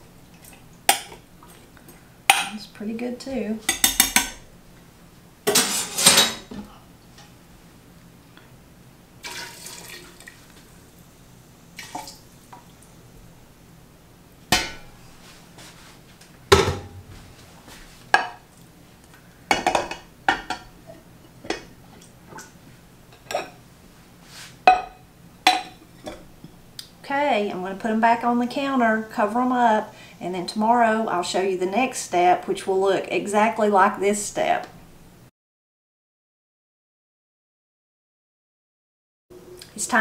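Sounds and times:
clinks and knocks of pots and jars: 3.7 - 4.4
liquid trickling: 9.2 - 10.6.

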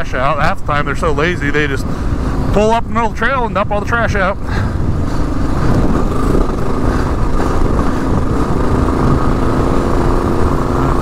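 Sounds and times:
motorcycle engine running: 4.4 - 11.0.

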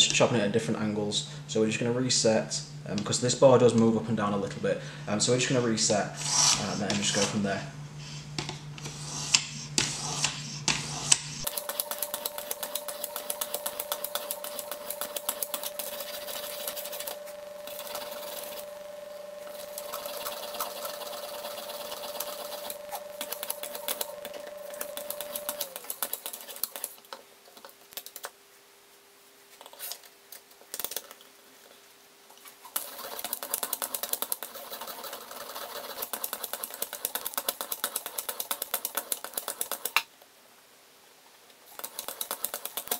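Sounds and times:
whetstone rubbing on knife edge: 11.5 - 17.2.

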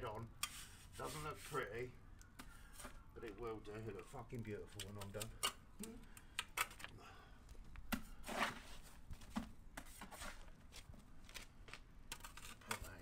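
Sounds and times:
trowel scraping mortar: 0.4 - 1.8.

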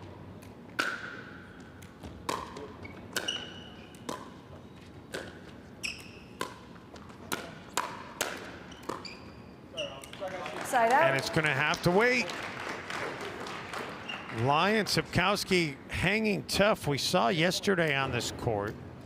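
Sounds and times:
ball bouncing on court: 0.7 - 4.4, 5.1 - 9.4
ball hit by paddles: 7.3 - 9.0.

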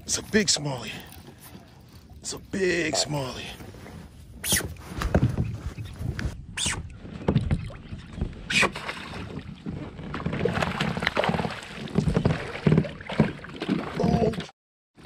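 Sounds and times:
water splashing: 7.2 - 14.5.

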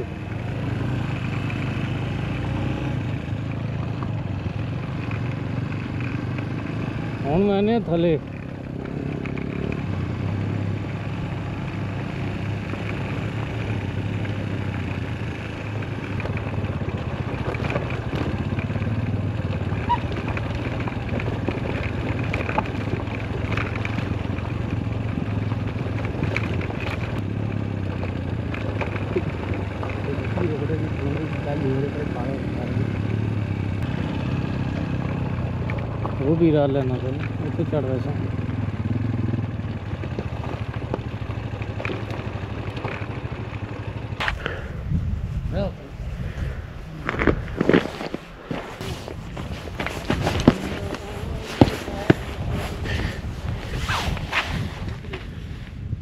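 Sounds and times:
motorcycle engine running: 0.0 - 56.0
stones clicking and knocking: 46.9 - 52.2.

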